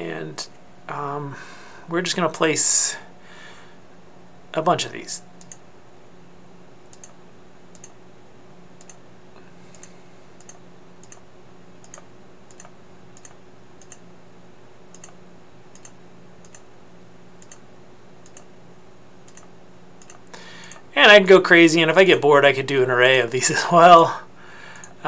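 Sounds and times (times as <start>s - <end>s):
faint steady hum: 0.0s - 25.0s
computer mouse clicking: 5.4s - 5.6s, 6.9s - 8.0s, 8.8s - 9.0s, 9.7s - 11.2s, 11.8s - 14.0s, 14.9s - 16.6s, 17.4s - 17.6s, 18.2s - 18.5s, 19.2s - 20.8s.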